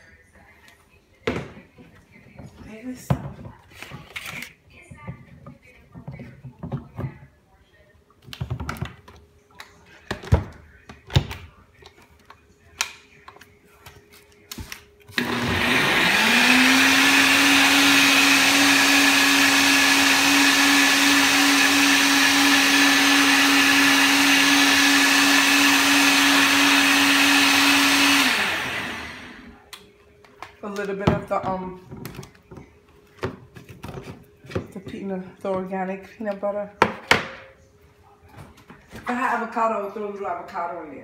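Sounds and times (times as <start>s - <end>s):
blender motor whining: 15.2s - 29.6s.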